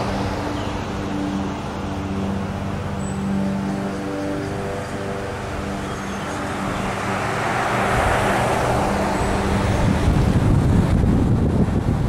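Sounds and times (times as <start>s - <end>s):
car engine humming: 0.0s - 12.0s
road noise: 0.0s - 12.0s
wind buffeting microphone: 4.3s - 12.0s.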